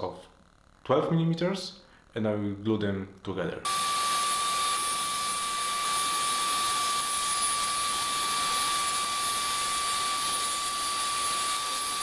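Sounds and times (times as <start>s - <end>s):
table saw whining: 3.7s - 12.0s.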